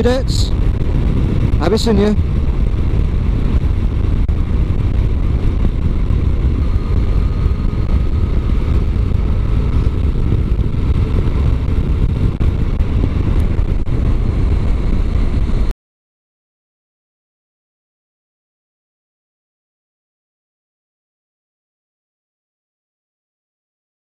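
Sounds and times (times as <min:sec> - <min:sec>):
motorcycle engine running: 0:00.0 - 0:15.7
wind buffeting camera: 0:00.0 - 0:15.7.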